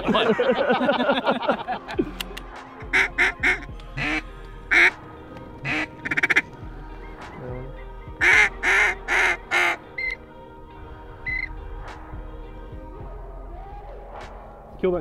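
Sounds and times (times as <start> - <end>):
duck quacking: 2.9 - 4.9, 5.6 - 6.4, 7.0 - 10.2.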